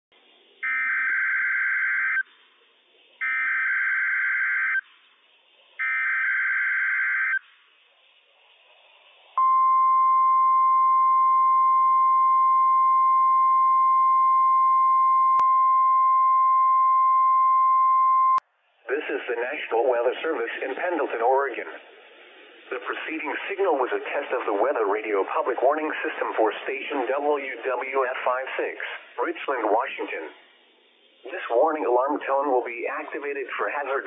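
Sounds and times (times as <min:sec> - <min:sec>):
faint radio hiss: 0:00.1 - 0:01.0, 0:02.0 - 0:06.1, 0:07.2 - 0:09.6, 0:18.4 - 0:34.0
steady alarm tone: 0:03.2 - 0:04.8, 0:05.8 - 0:07.4.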